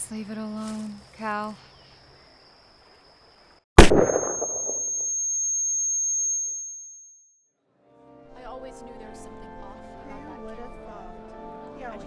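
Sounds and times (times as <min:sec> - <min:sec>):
gunshot: 0:03.8 - 0:04.8
high-pitched ringing tone: 0:03.8 - 0:07.4.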